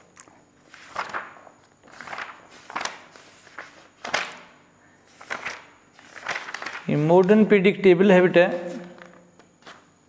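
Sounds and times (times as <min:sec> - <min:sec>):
book pages rustling: 0:00.6 - 0:04.4, 0:05.1 - 0:07.4.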